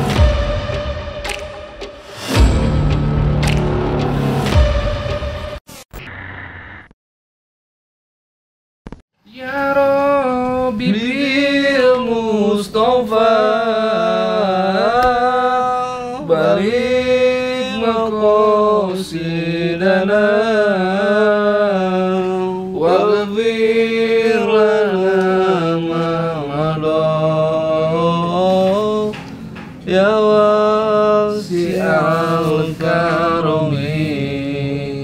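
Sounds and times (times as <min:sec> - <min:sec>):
person chanting: 0:09.2 - 0:29.3, 0:29.9 - 0:35.0.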